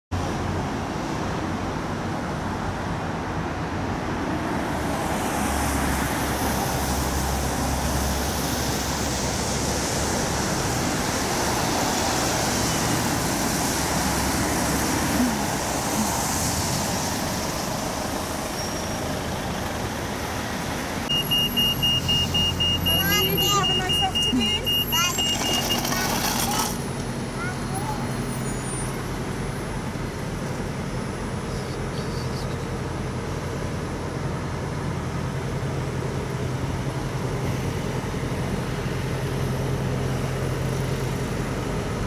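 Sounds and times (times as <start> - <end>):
passing cars and buses: 0.1 - 42.0
fast high electronic beeping: 21.1 - 26.2.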